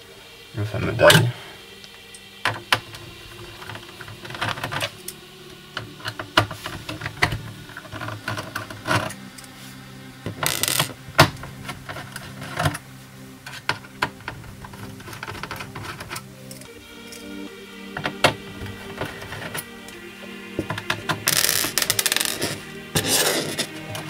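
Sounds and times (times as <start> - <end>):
scraping rustle: 20.7 - 24.0.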